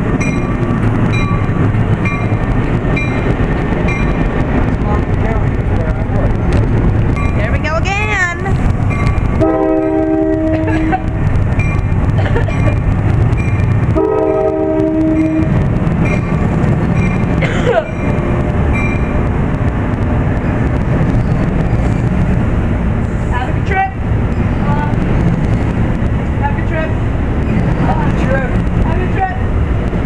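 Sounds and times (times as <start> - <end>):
train rumbling past: 0.0 - 30.0
train horn blasts: 9.4 - 11.2, 13.9 - 15.6.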